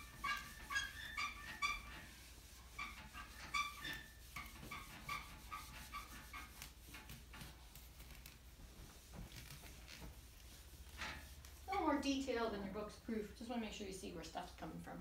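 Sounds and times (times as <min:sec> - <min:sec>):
eraser squeaking on whiteboard: 0:00.0 - 0:08.4, 0:09.3 - 0:12.0.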